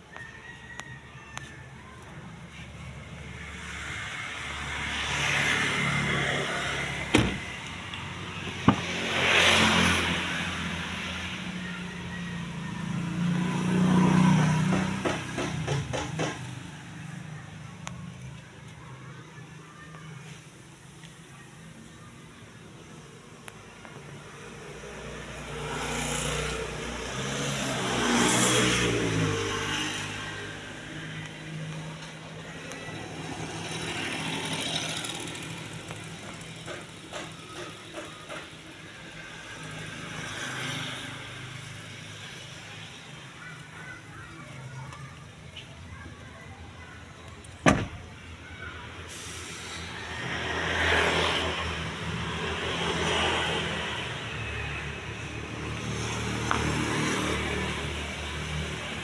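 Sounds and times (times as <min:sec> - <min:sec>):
vehicle engine passing: 0:02.4 - 0:15.8, 0:24.4 - 0:37.1
sharp thump: 0:07.1 - 0:07.5, 0:47.6 - 0:48.0.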